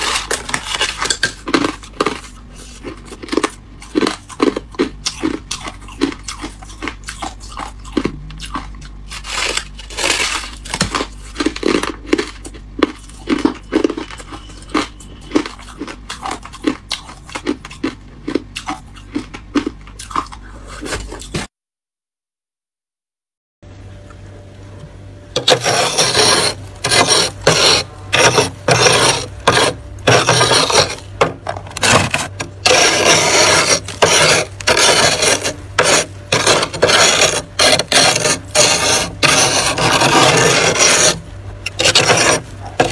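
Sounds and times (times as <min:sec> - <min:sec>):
person chewing icy frost: 0:00.0 - 0:21.5, 0:25.4 - 0:42.9.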